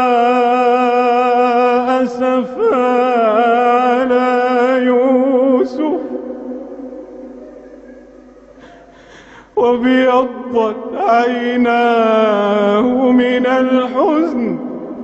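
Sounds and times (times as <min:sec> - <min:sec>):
man chanting melodically: 0:00.0 - 0:15.0.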